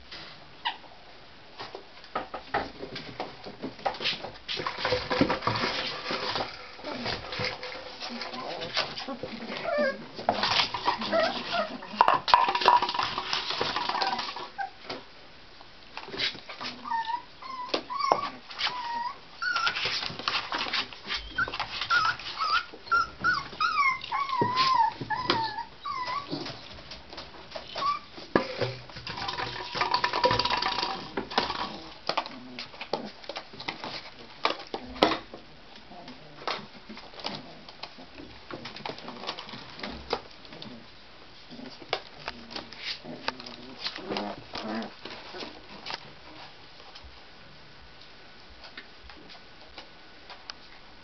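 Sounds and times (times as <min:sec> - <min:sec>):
puppies whining: 0:09.5 - 0:12.0, 0:13.8 - 0:14.8, 0:16.8 - 0:19.9, 0:21.2 - 0:26.8, 0:27.6 - 0:28.2.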